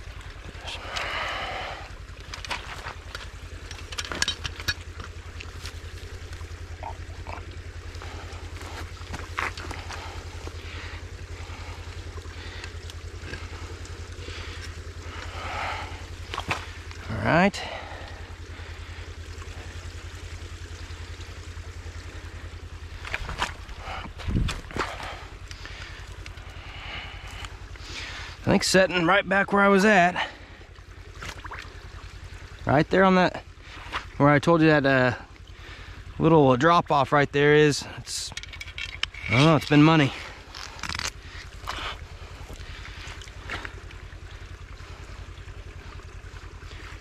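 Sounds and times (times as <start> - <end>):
steady low rumble: 0.0 - 47.0
water rushing: 0.0 - 47.0
splashes and knocks in water: 2.0 - 17.1, 22.8 - 26.5, 30.9 - 32.6, 33.6 - 34.2, 38.2 - 44.5
sticks snapping and crackling: 40.5 - 41.8.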